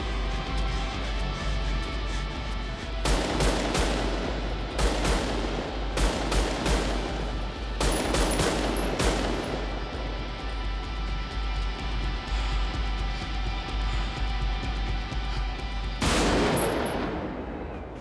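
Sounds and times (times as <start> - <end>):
low music beat: 0.0 - 18.0
automatic rifle gunfire: 3.0 - 10.4, 16.0 - 18.0.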